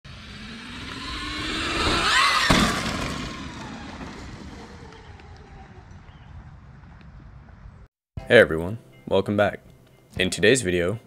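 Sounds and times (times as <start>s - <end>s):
rising whoosh with whine: 0.1s - 7.9s.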